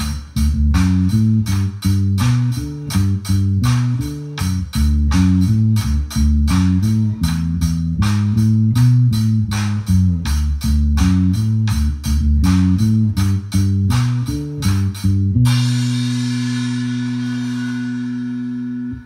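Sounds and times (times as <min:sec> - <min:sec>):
drums and cymbals: 0:00.0 - 0:19.0
electric bass line: 0:00.0 - 0:19.0.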